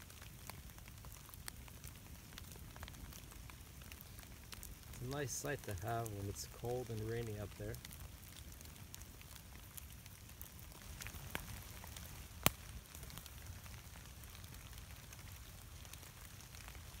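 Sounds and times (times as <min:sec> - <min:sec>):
campfire crackling: 0:00.0 - 0:17.0
sharp fire pop: 0:12.4 - 0:12.7.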